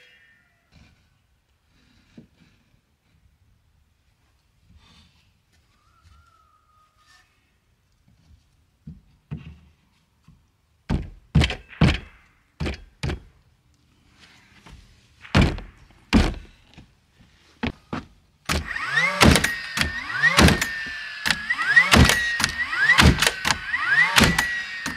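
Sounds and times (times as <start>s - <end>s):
nail gun firing nails: 10.9s - 13.3s, 15.2s - 16.6s, 18.4s - 24.9s
wooden boards thunking: 10.9s - 13.3s, 15.2s - 16.6s
nail gun whirring: 18.4s - 24.9s.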